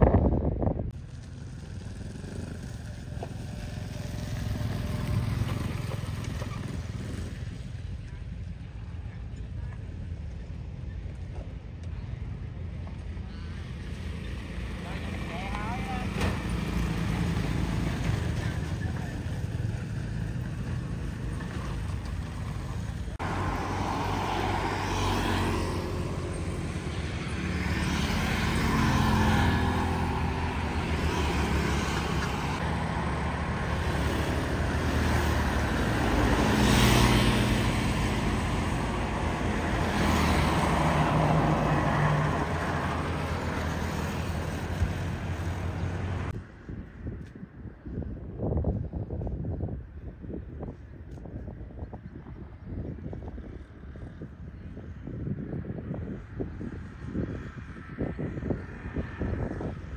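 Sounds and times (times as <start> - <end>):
vehicle engines humming: 0.0 - 47.3
rushing road noise: 0.0 - 59.9.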